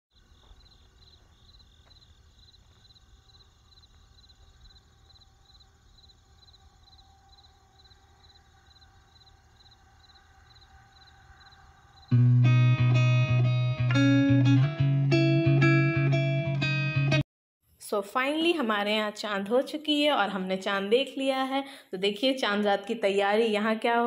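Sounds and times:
crickets chirping: 0:00.1 - 0:12.2
plucked guitar music: 0:12.1 - 0:17.2.

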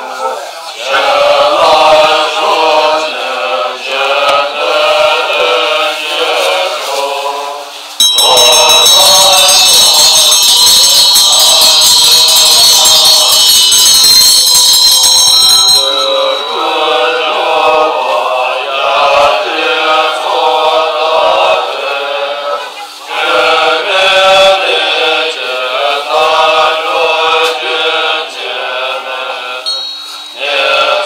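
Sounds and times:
monks chanting: 0:00.0 - 0:14.1, 0:15.8 - 0:31.0
rattle: 0:08.0 - 0:16.3
high bright bell ringing: 0:08.0 - 0:17.7, 0:29.7 - 0:31.0.

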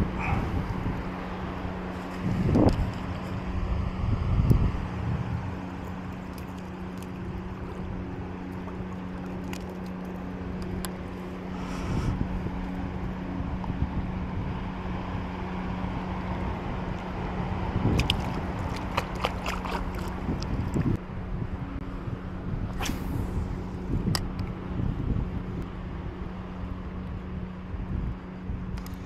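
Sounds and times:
water noise: 0:00.0 - 0:21.8
low hum: 0:00.0 - 0:29.0
wind: 0:00.0 - 0:29.0.

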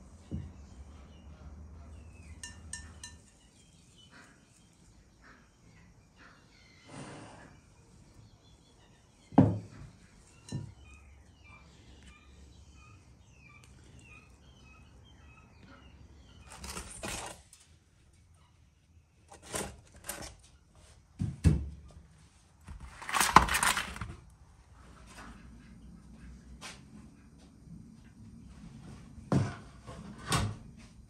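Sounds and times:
faint bird chirps: 0:00.2 - 0:16.8
metal trays scraping on brick: 0:16.4 - 0:17.5, 0:19.3 - 0:20.4, 0:22.7 - 0:24.2.

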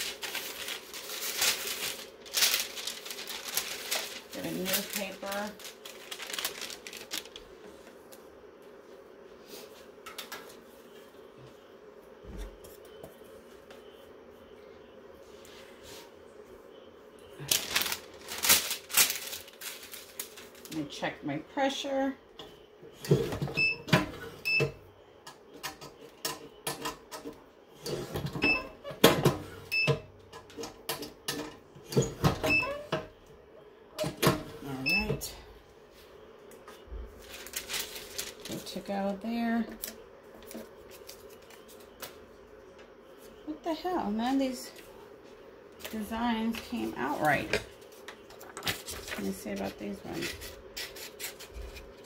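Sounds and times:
paper rustling: 0:00.0 - 0:08.0, 0:17.4 - 0:20.8, 0:37.2 - 0:38.9, 0:40.4 - 0:42.2, 0:45.9 - 0:52.0.

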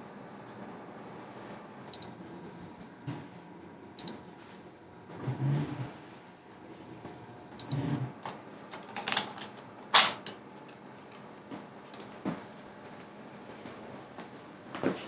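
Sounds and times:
low motor hum: 0:00.5 - 0:08.3.

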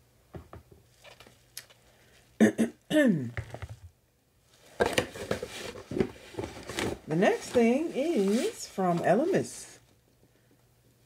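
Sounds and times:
packaging rustling: 0:00.9 - 0:01.8, 0:04.7 - 0:09.3.

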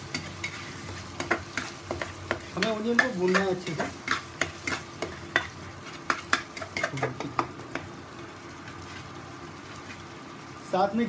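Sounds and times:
onions sizzling in oil: 0:00.0 - 0:11.0
metal spatula scraping frying pan: 0:00.1 - 0:07.2.

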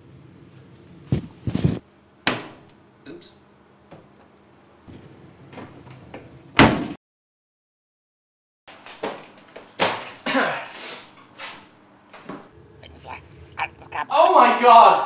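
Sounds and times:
laundry machine door clunks: 0:05.5 - 0:07.0.

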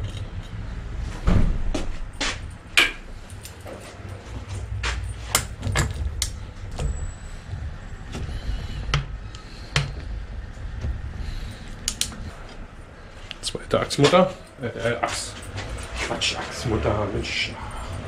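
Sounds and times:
low rumble: 0:00.0 - 0:13.2.

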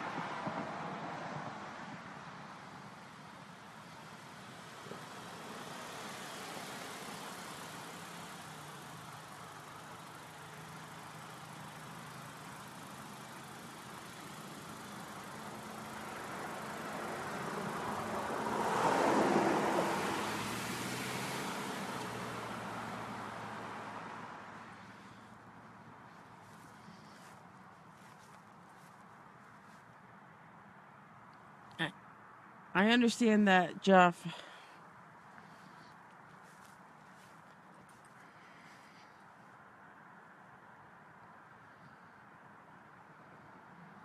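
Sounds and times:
car driving past: 0:00.0 - 0:27.4
passing traffic: 0:00.0 - 0:44.0.

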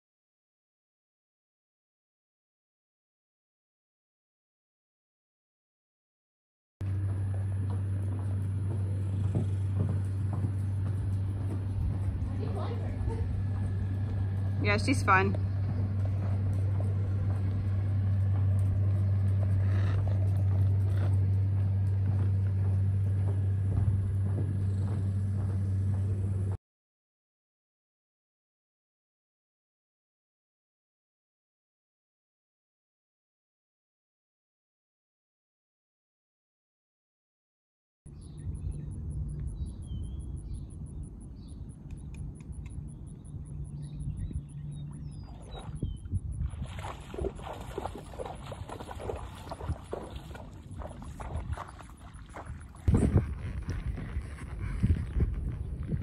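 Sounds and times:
hooves thudding on sand: 0:06.8 - 0:26.6, 0:43.8 - 0:56.0
low mechanical hum: 0:06.8 - 0:26.6, 0:38.1 - 0:56.0
wind rumble on microphone: 0:06.8 - 0:26.6, 0:38.1 - 0:56.0
small birds chirping: 0:38.1 - 0:56.0.

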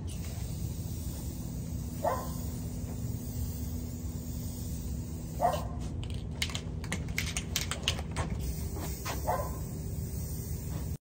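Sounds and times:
spray bottle hissing spurts: 0:00.0 - 0:11.0
steady low hum: 0:00.0 - 0:11.0
dog bark: 0:02.0 - 0:02.4, 0:05.4 - 0:05.8, 0:09.2 - 0:09.7.

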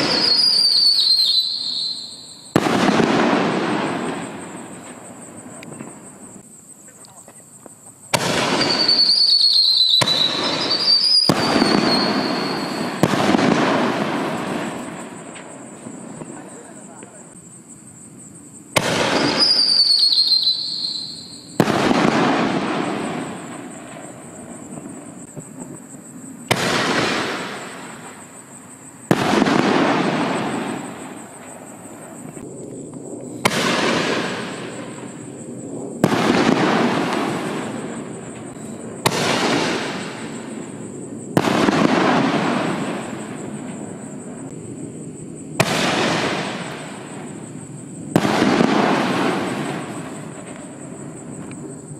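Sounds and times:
high whistling tone: 0:00.0 - 0:02.5, 0:08.6 - 0:12.8, 0:19.2 - 0:21.5
firework shells booming: 0:00.0 - 0:06.4, 0:08.1 - 0:17.4, 0:18.6 - 0:51.9.

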